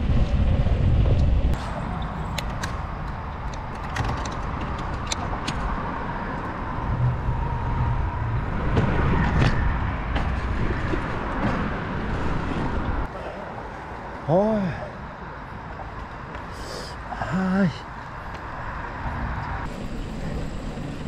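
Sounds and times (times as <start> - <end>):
wind rumble on microphone: 0.0 - 13.1
passing cars: 0.0 - 21.0.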